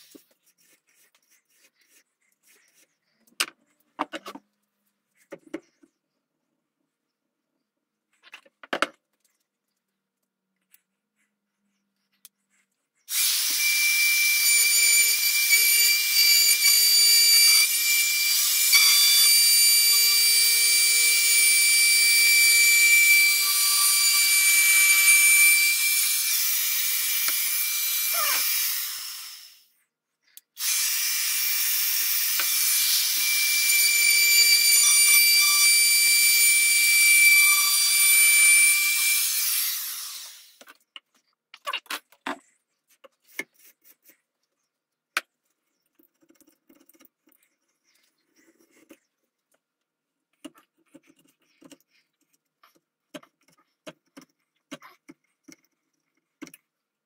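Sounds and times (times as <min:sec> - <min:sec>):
router whining and cutting wood: 0:13.1 - 0:29.7, 0:30.6 - 0:40.8.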